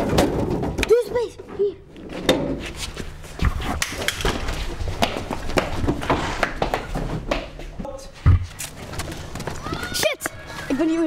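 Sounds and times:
knocks and thuds of rummaging: 0:00.0 - 0:02.6
footsteps: 0:01.4 - 0:11.0.

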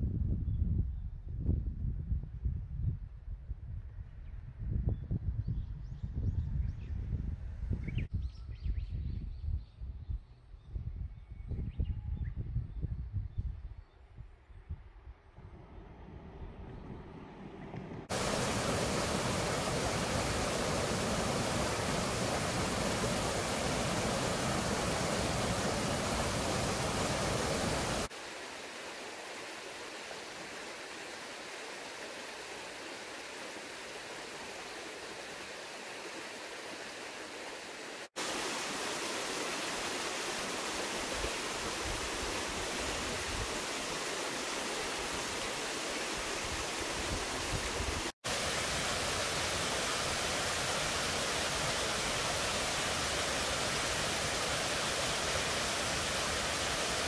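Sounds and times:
mountain stream rushing: 0:15.4 - 0:57.0.

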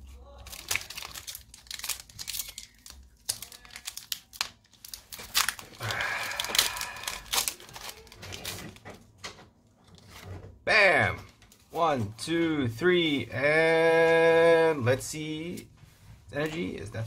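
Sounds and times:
foil wrapper crinkling and tearing: 0:00.0 - 0:08.9.

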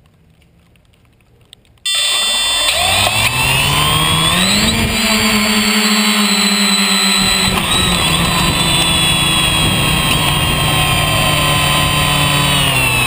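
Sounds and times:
drone motors whining: 0:01.9 - 0:13.0.

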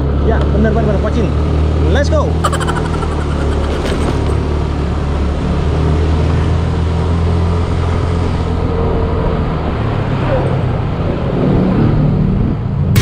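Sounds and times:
road noise: 0:03.7 - 0:12.9.

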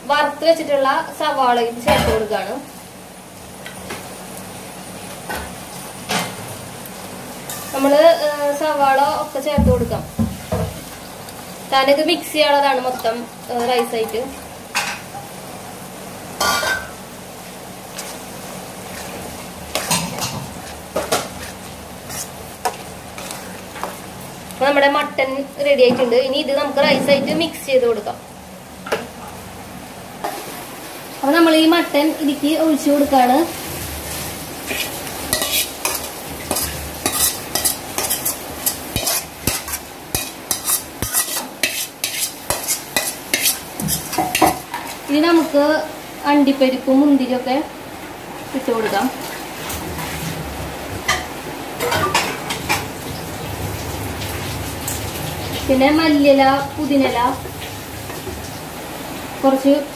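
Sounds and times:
spoon scraping metal pan: 0:34.7 - 0:44.6.

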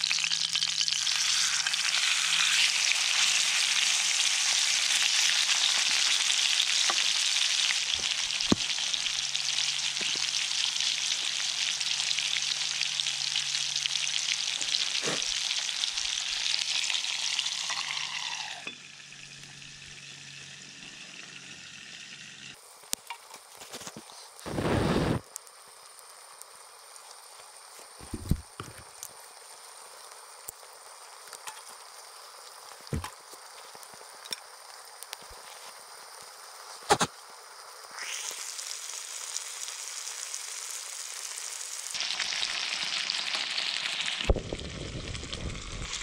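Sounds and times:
twig fire crackling: 0:00.0 - 0:17.9, 0:22.6 - 0:37.0
steak sizzling in skillet: 0:00.0 - 0:46.0.

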